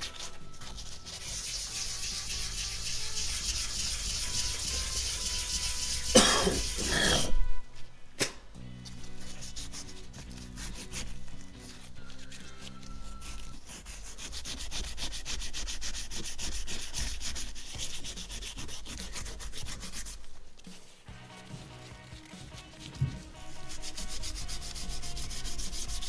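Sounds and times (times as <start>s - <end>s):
scuff pad scrubbing metal: 0.0s - 6.9s, 9.0s - 26.0s
background music: 0.0s - 26.0s.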